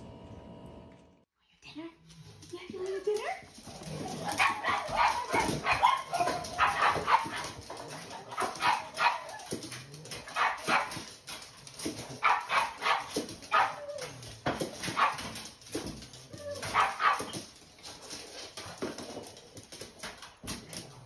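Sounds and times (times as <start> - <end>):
dogs barking and yipping: 3.7 - 18.0.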